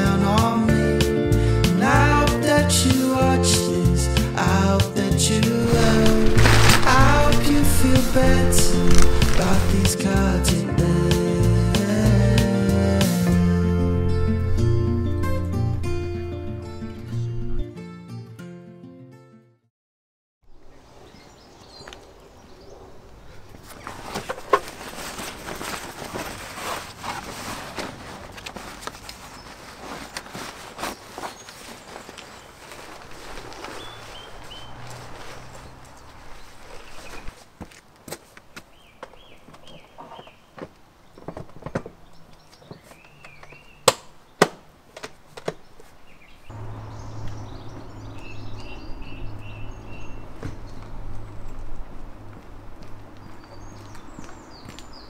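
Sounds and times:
birds chirping: 5.5 - 10.2, 20.5 - 24.6, 30.8 - 37.4, 38.4 - 44.4, 45.4 - 55.0
nylon cover rustling and crinkling: 5.6 - 10.0, 23.7 - 37.5.

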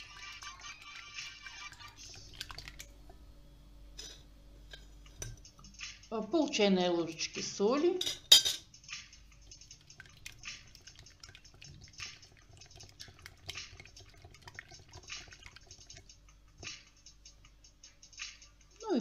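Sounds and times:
whisk beating liquid in glass bowl: 9.4 - 16.1.

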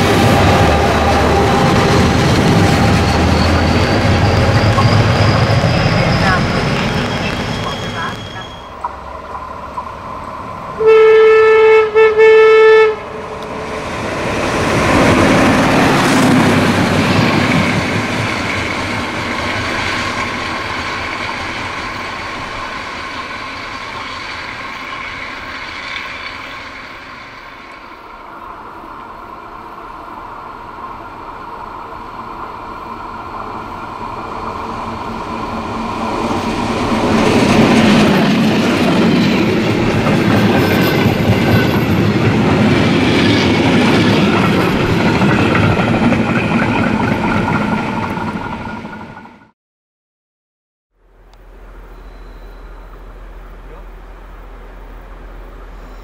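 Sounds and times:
diesel locomotive approaching: 0.0 - 49.6, 51.0 - 56.0
railcar engine and wheels passing: 0.0 - 49.6, 51.0 - 56.0
train horn blast: 10.8 - 13.5.

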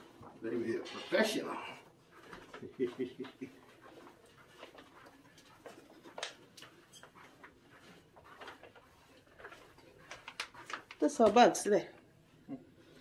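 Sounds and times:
footsteps on carpet: 1.9 - 11.5.

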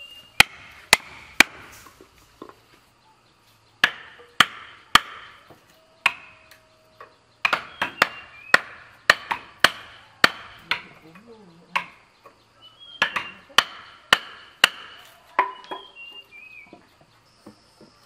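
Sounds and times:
hammer striking wooden planks: 0.4 - 1.7, 3.8 - 6.4, 7.0 - 10.9, 13.0 - 15.9.

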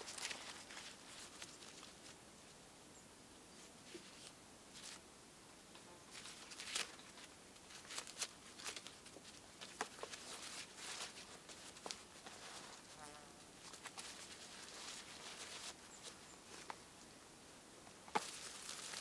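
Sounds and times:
cord rustling: 0.0 - 2.2, 6.1 - 13.0, 13.6 - 16.8, 18.1 - 19.0
faint forest background: 0.0 - 19.0.

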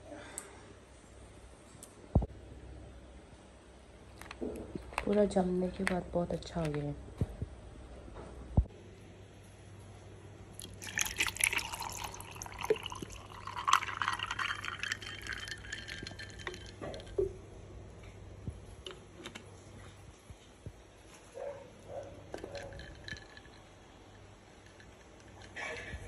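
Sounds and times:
water pouring into a glass mug: 10.6 - 17.3, 22.3 - 23.7
ice clinking: 10.6 - 17.4, 22.2 - 25.9.

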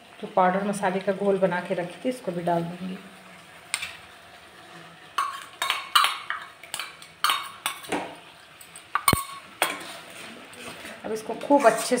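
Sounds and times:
spoon scraping metal bowl: 5.2 - 7.9.

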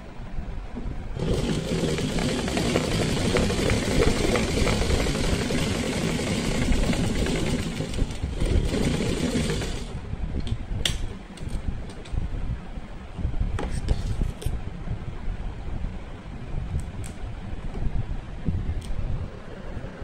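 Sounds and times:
sewing machine stitching: 1.2 - 10.0.

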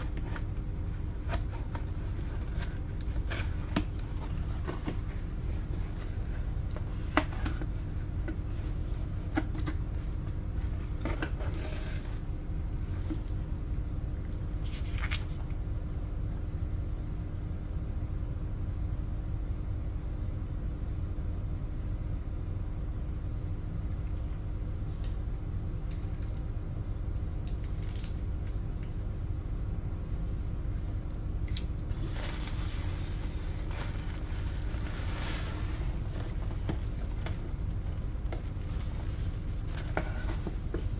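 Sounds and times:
bubble wrap crinkling: 0.0 - 13.3, 31.9 - 40.9
steady low hum: 0.0 - 40.9.

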